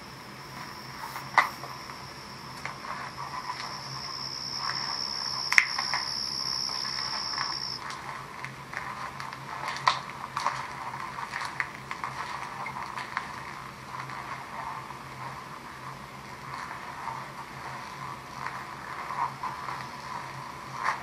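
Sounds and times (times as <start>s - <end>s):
low steady hum: 0.0s - 21.0s
insect trill: 0.1s - 7.9s.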